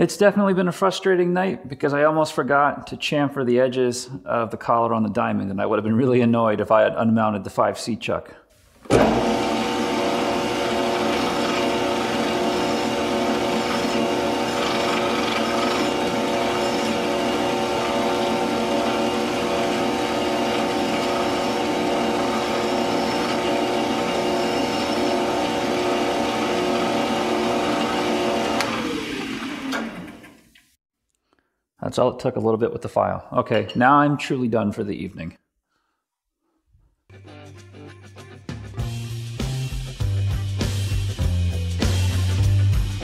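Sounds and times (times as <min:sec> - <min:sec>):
metal lathe whining: 0:08.9 - 0:30.4
hand file on spinning metal: 0:10.6 - 0:26.8.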